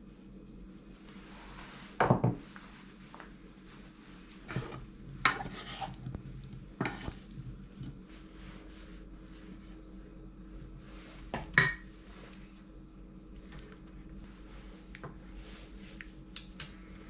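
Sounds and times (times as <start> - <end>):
wooden spatula scraping saucepan: 4.4 - 6.1, 6.8 - 7.2.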